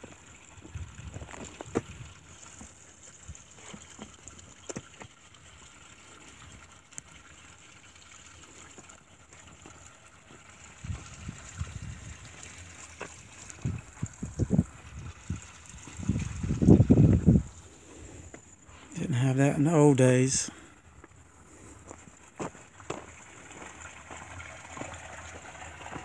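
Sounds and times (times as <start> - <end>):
wind buffeting microphone: 0.6 - 2.3, 10.7 - 12.4, 13.4 - 17.6.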